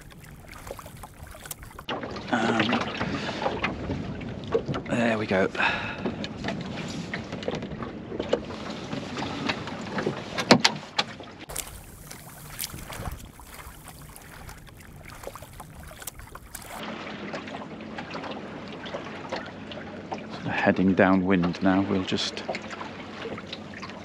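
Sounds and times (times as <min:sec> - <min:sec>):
water washing along boat hull: 0:00.0 - 0:10.5, 0:11.5 - 0:20.2
wind on microphone: 0:11.5 - 0:16.8.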